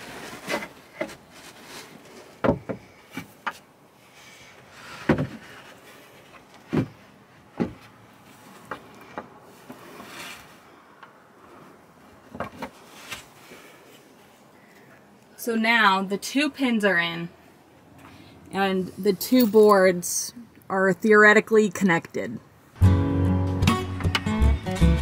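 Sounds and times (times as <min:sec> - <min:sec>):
wooden boards knocking and sliding: 0:02.4 - 0:03.6, 0:04.9 - 0:05.6, 0:06.6 - 0:08.0, 0:12.3 - 0:12.8.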